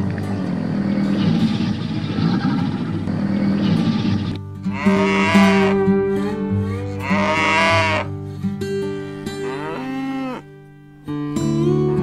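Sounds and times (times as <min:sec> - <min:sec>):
guitar music: 0:00.0 - 0:12.0
cattle mooing: 0:04.7 - 0:08.1, 0:09.3 - 0:10.5.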